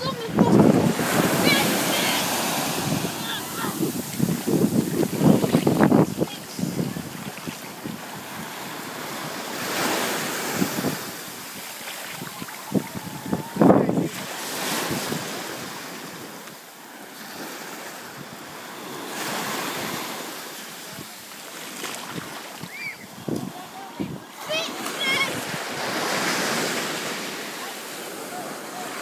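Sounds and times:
wind buffeting microphone: 0:00.0 - 0:16.3
surf washing up: 0:00.0 - 0:29.0.

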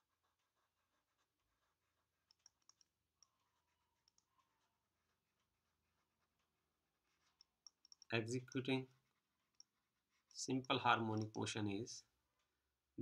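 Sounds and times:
stylus tapping on a tablet: 0:02.2 - 0:03.4.

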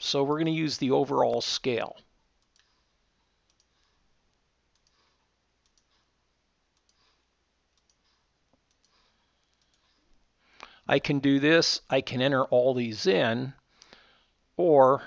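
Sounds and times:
faint keyboard typing clicks: 0:02.4 - 0:06.1, 0:06.7 - 0:10.0.

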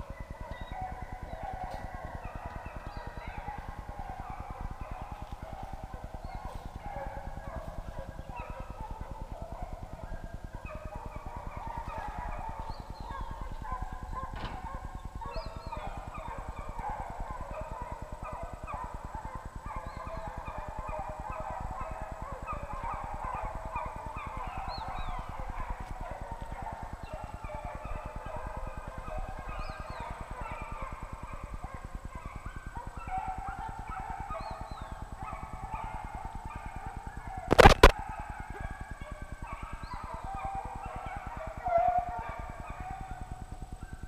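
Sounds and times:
hounds baying: 0:00.0 - 0:44.0.

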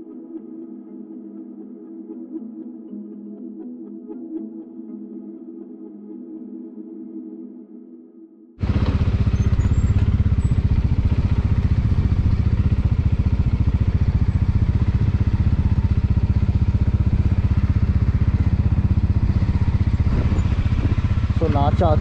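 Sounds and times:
motorcycle engine running: 0:08.6 - 0:22.0.

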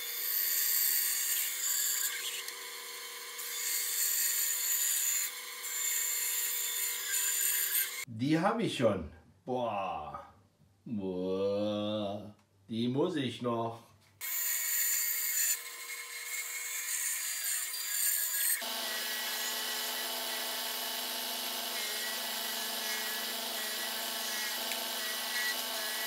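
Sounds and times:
bandsaw cutting wood: 0:00.0 - 0:08.1, 0:14.2 - 0:26.0
belt sander sanding wood: 0:18.0 - 0:26.0.

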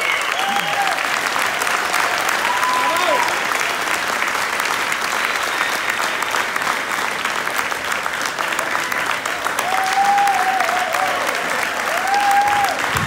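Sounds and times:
audience applauding: 0:00.0 - 0:13.0
person cheering: 0:00.2 - 0:01.2, 0:02.3 - 0:03.4, 0:09.6 - 0:13.0.

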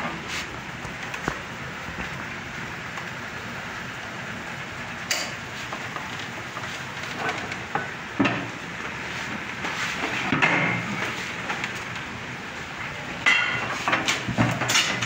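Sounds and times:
workshop hiss: 0:00.0 - 0:15.0
steel plates knocking and clanking: 0:13.2 - 0:15.0.

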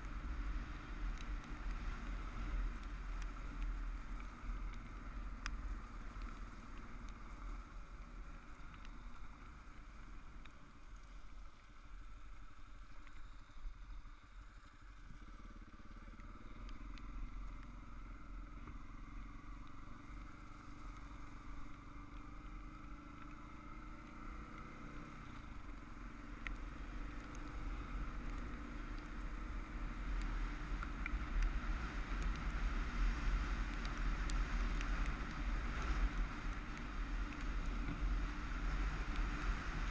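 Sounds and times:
wind rumble on microphone: 0:12.0 - 0:39.9
motorcycle engine running: 0:15.0 - 0:39.9.

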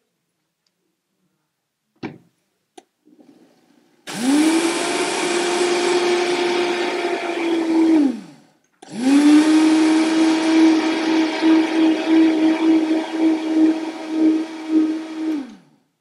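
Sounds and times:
blender motor grinding: 0:04.0 - 0:15.8.

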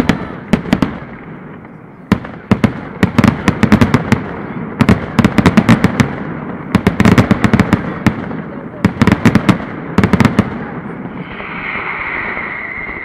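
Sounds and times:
firecracker bangs: 0:00.0 - 0:13.0.

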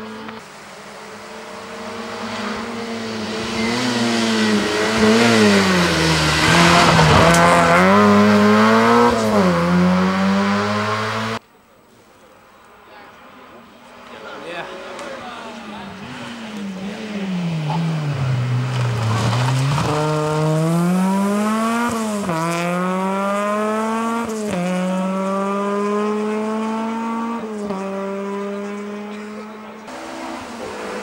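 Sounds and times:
rally car engine revving and shifting: 0:00.0 - 0:11.4, 0:14.6 - 0:31.0.

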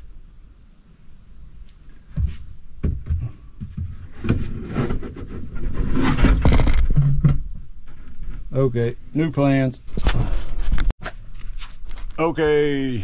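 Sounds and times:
wooden platform knocks and scrapes: 0:02.1 - 0:08.5.

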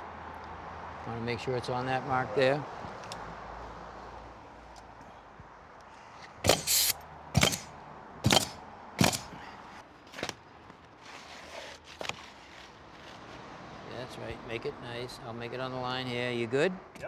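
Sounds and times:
pneumatic roofing nailer firing: 0:06.4 - 0:09.4.

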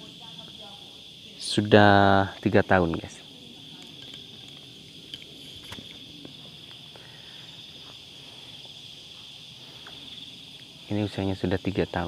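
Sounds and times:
high-pitched insect chorus: 0:00.0 - 0:12.0
faint footsteps on grass: 0:05.8 - 0:11.2.

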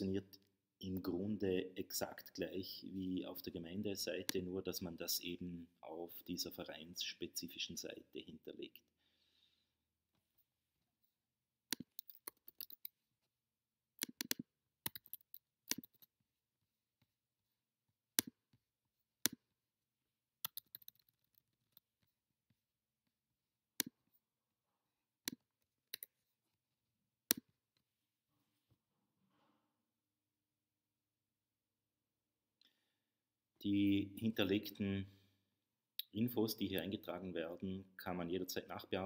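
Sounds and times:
computer mouse clicking: 0:11.7 - 0:12.9, 0:14.0 - 0:16.1, 0:18.2 - 0:18.4, 0:20.4 - 0:21.8, 0:23.8 - 0:24.0, 0:25.3 - 0:26.1.

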